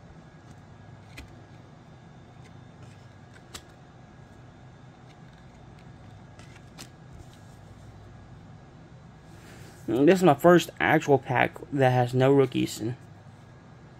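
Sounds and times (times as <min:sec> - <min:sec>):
cards clicking: 0:02.4 - 0:03.8, 0:05.0 - 0:07.0.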